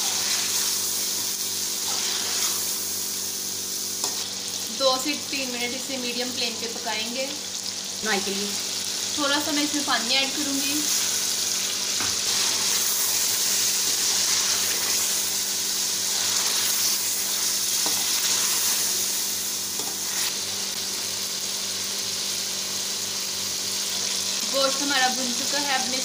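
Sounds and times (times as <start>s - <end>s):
food sizzling in a pot: 0.0s - 26.0s.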